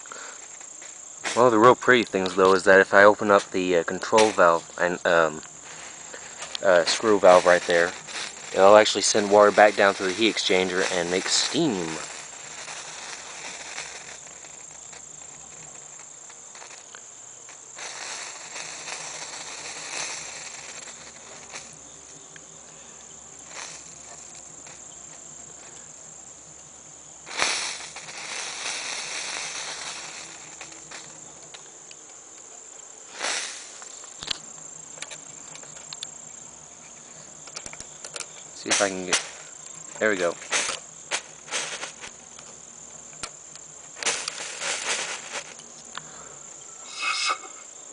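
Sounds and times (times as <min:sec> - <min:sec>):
crickets trilling: 0:00.0 - 0:47.9.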